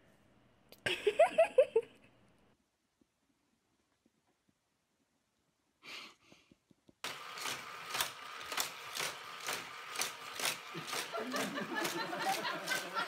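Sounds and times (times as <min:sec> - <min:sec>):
sharp clack of toy cars: 0:07.0 - 0:13.0
toy car track whirring: 0:07.0 - 0:13.0.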